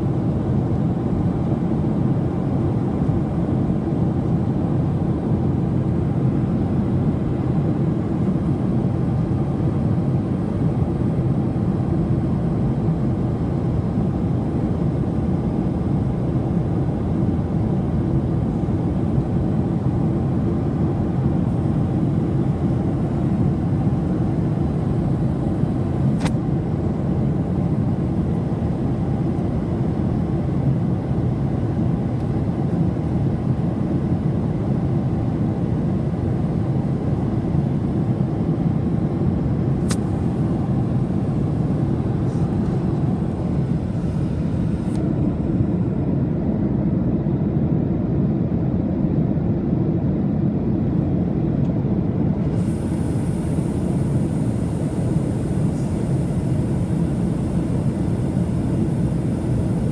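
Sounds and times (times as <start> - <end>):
airliner cabin engine rush: 0.0 - 59.9.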